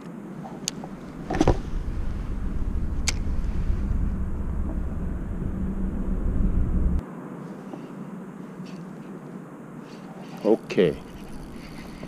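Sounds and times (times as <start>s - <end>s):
traffic rumble on bridge: 0.0s - 10.2s
sharp click: 3.0s - 3.2s.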